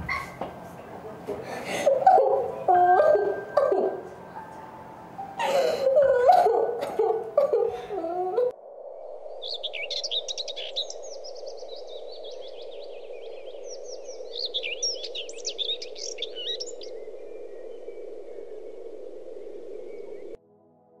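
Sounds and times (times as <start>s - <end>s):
steady low hum: 0.0s - 20.4s
small birds chirping: 9.4s - 18.2s.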